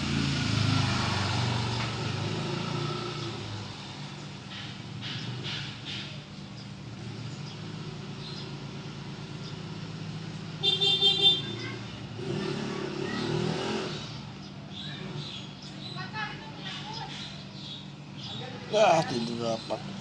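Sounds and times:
vehicle passing by: 0.0s - 5.7s, 11.4s - 17.2s
traffic engine hum: 0.0s - 20.0s
vehicle horn toot: 10.6s - 11.6s.

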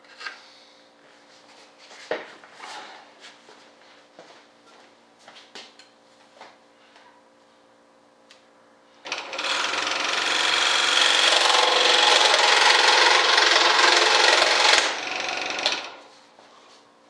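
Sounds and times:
power tool grinding: 9.1s - 16.1s.

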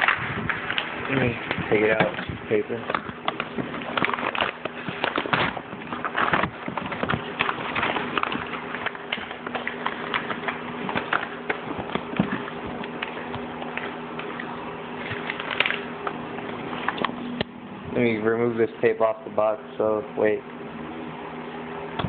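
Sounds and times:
paper crinkling and rustling: 0.0s - 17.4s.

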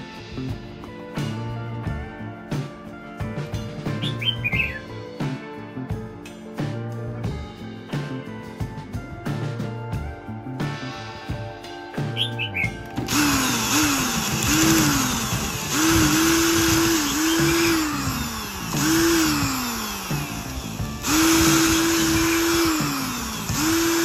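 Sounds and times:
electric drill whirring in bursts: 12.8s - 24.0s
hiss of running drill: 13.1s - 24.0s.

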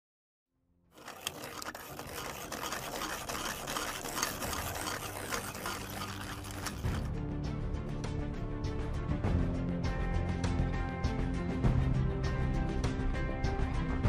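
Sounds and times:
mechanical rattling and clicking: 1.0s - 7.1s
music: 3.8s - 14.0s.

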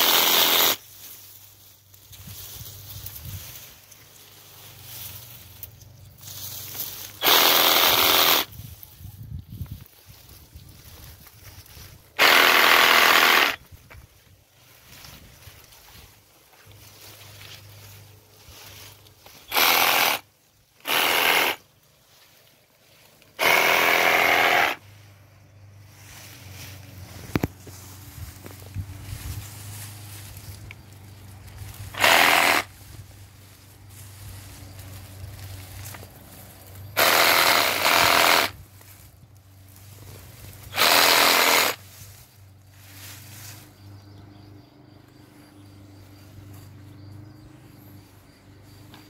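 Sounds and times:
power tool hammering: 0.0s - 0.8s, 7.2s - 8.5s, 12.2s - 13.6s, 20.8s - 21.6s, 23.4s - 24.8s, 32.0s - 32.7s, 37.0s - 38.6s, 40.8s - 41.8s
bush branches rustling: 0.6s - 12.8s, 13.4s - 23.6s, 24.7s - 44.4s.

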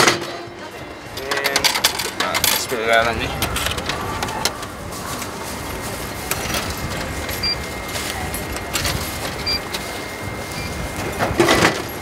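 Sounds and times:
street traffic: 0.0s - 12.0s
coins clicking and clinking: 1.1s - 3.8s.

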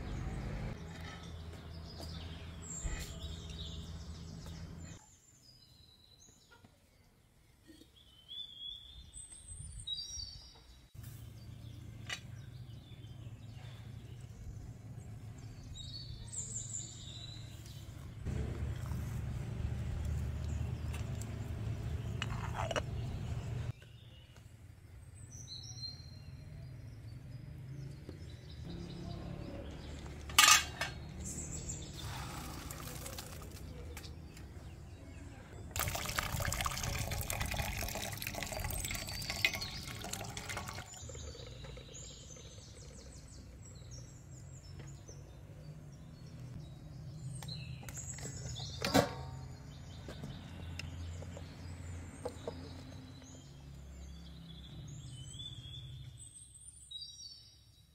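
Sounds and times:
metal pots clinking: 30.3s - 31.1s
water pouring into steel bowl: 32.4s - 33.6s, 35.8s - 42.2s.

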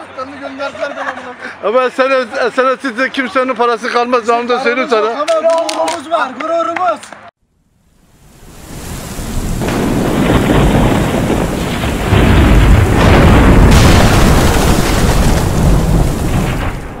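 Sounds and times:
heavy rain: 8.0s - 17.0s
thunder crack: 8.4s - 17.0s
deep rolling thunder: 8.6s - 17.0s.

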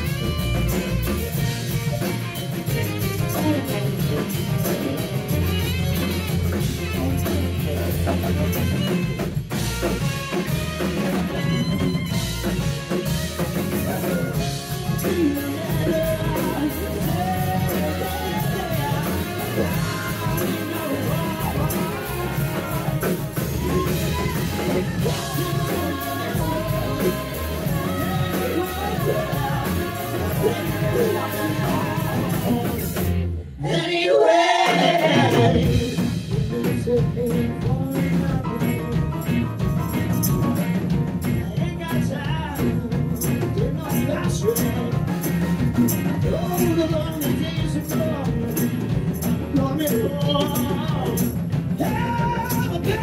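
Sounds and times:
grand piano: 0.0s - 33.5s, 35.3s - 53.0s
drum kit: 0.0s - 33.8s, 34.4s - 53.0s
electric bass: 0.0s - 33.8s, 34.9s - 53.0s
group of singers: 13.0s - 40.7s, 45.9s - 53.0s.

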